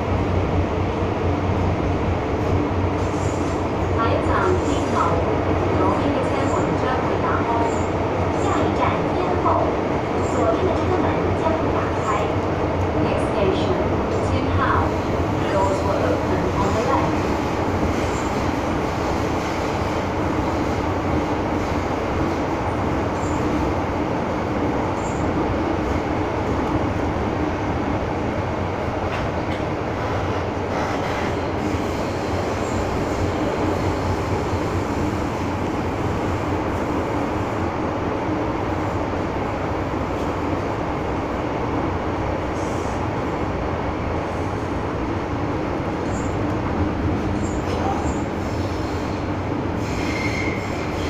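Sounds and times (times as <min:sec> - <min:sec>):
train wheels rumbling on rail: 0:00.0 - 0:51.0.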